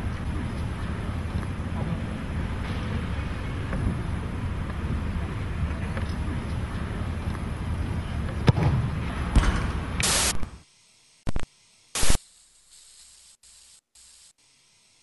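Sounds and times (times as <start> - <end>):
steady background noise: 0.0 - 15.0
burst of hiss: 10.0 - 10.4, 11.9 - 15.0
short bursts of static: 10.0 - 15.0.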